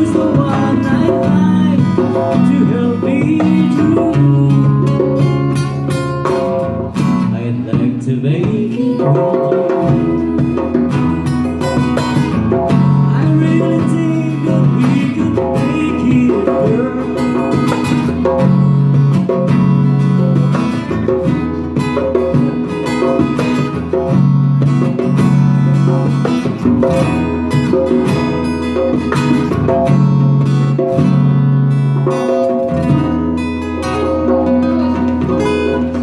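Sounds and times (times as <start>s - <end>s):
acoustic guitar strumming: 0.0s - 36.0s
djembe played by hand: 0.0s - 36.0s.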